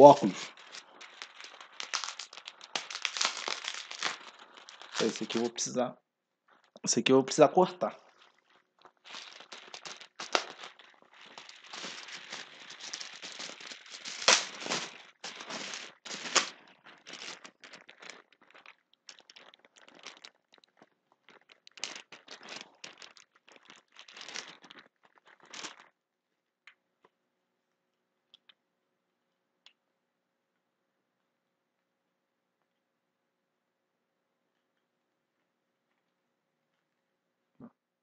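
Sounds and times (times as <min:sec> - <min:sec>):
sharp bubble wrap cracks: 0:00.0 - 0:05.6, 0:08.8 - 0:25.9
bubble wrap crinkling and tearing: 0:00.0 - 0:05.7, 0:07.8 - 0:26.0.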